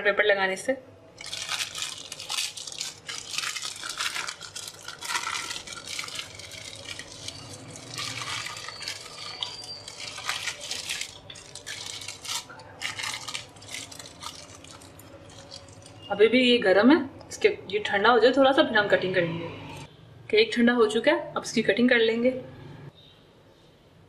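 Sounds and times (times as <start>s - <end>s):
paper rustling and crinkling: 1.2s - 16.0s.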